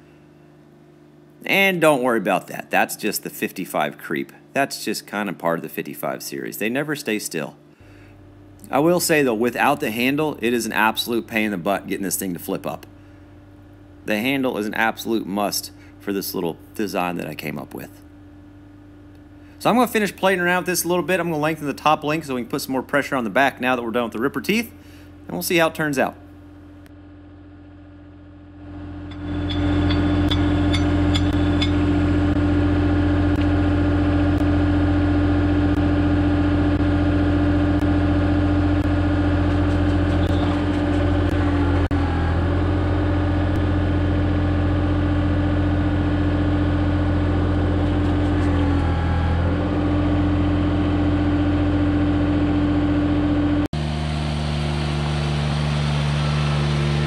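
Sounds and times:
tractor diesel engine running: 0:26.4 - 0:57.0.

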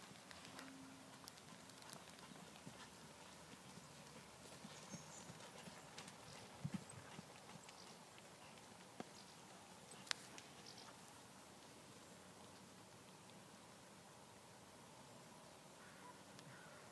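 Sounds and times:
hoofbeats on sand: 0:00.0 - 0:09.2.

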